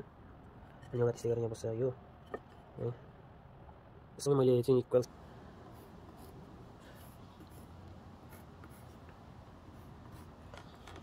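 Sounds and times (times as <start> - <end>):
pencil scratching on wood: 5.7 - 10.7.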